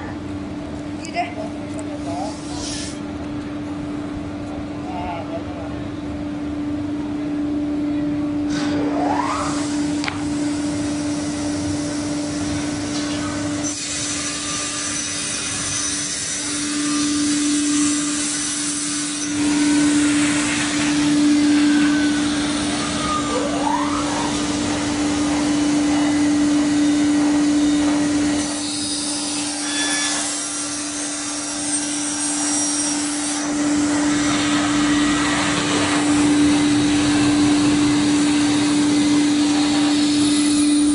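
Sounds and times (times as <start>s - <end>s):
saw motor hum: 9.0s - 40.9s
circular blades cutting plywood: 12.2s - 40.9s.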